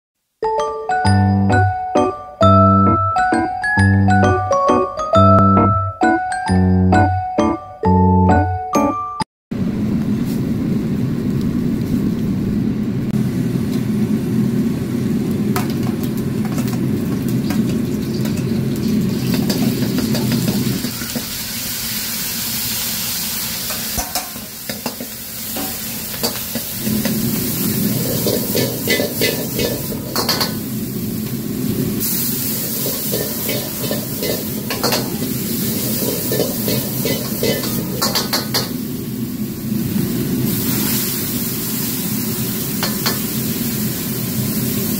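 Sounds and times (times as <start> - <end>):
gas burner rushing: 9.5 - 44.9
food sizzling in a wok: 13.2 - 44.9.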